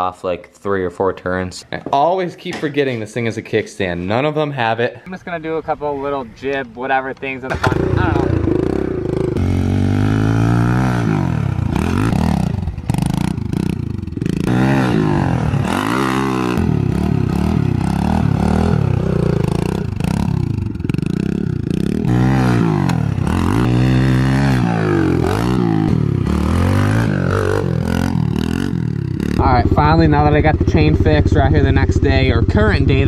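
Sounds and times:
small motorbike engine revving: 0:07.5 - 0:30.3.

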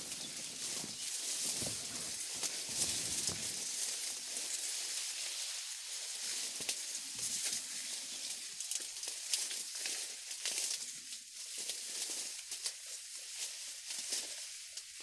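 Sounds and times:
reeds rustling and crackling: 0:00.0 - 0:15.0
light snaps of reeds: 0:00.1 - 0:15.0.

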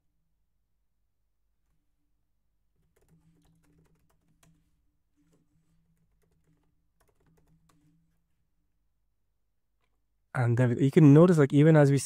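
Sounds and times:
typing on computer keyboard: 0:02.8 - 0:08.3.

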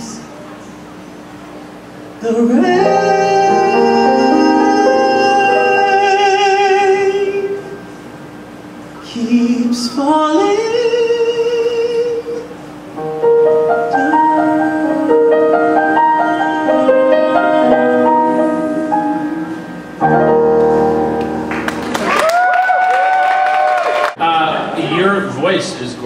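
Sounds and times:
man singing: 0:02.2 - 0:07.8, 0:09.0 - 0:12.5, 0:13.9 - 0:19.6
piano chords: 0:02.2 - 0:08.3, 0:09.3 - 0:23.2.

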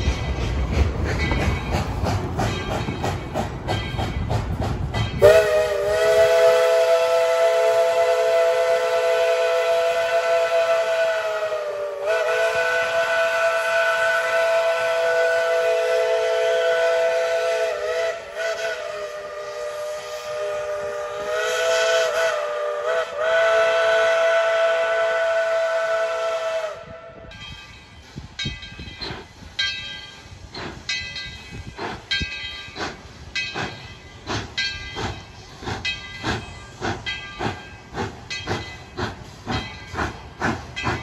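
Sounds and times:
steam locomotive whistle: 0:05.1 - 0:27.4.

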